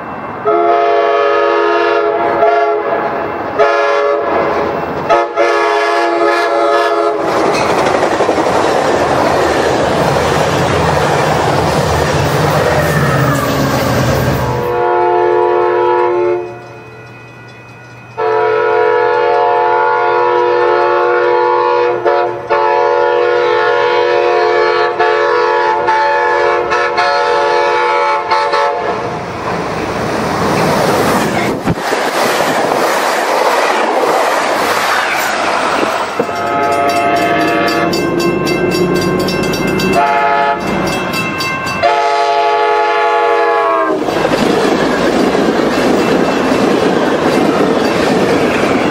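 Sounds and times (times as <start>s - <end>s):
train passing at speed: 0.0s - 48.9s
train horn blasts: 0.4s - 7.2s, 12.8s - 16.7s, 18.2s - 29.0s, 36.2s - 39.3s, 39.9s - 40.8s, 41.8s - 44.1s.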